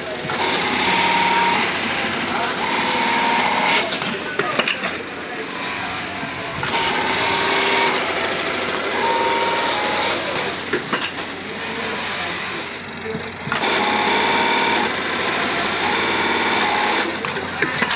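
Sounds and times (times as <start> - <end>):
sewing machine stitching: 0.3 - 4.7, 6.6 - 10.6, 13.5 - 17.9.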